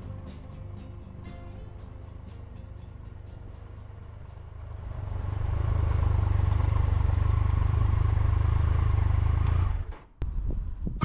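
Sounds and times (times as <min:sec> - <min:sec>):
motorcycle engine running: 0:03.0 - 0:11.0.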